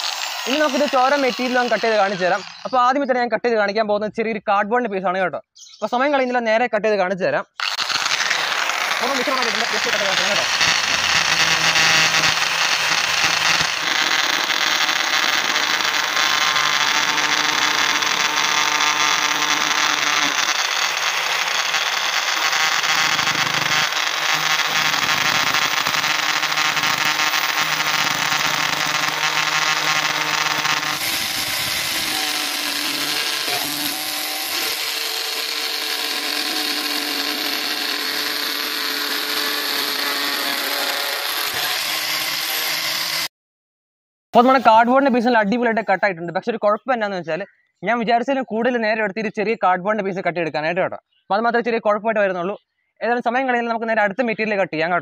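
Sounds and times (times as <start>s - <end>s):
angle grinder cutting cardboard: 0.0s - 2.9s, 7.6s - 43.3s, 44.4s - 45.1s.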